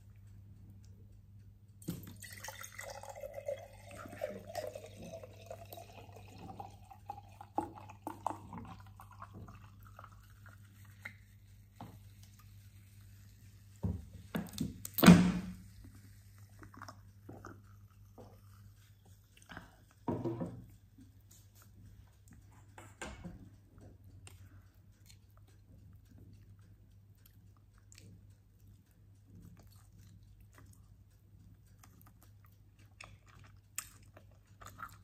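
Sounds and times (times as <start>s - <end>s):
drink pouring into glass: 1.9s - 10.5s.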